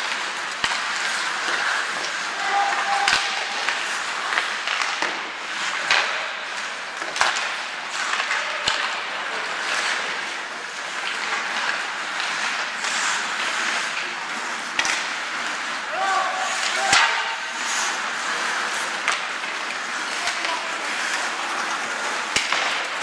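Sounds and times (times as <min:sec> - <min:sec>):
hockey sticks and puck clacking: 0:00.0 - 0:23.0
skates scraping on ice: 0:00.0 - 0:23.0.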